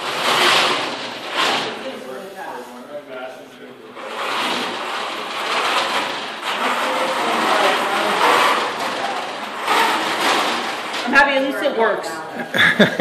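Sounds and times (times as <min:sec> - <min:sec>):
robot motors and wheels rushing: 0:00.0 - 0:02.3, 0:03.9 - 0:11.6.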